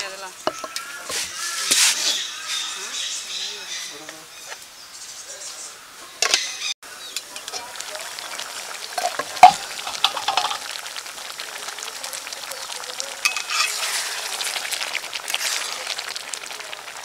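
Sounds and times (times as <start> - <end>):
curry bubbling and sizzling in a pot: 6.9 - 17.0
metal ladle stirring thick gravy: 13.3 - 17.0.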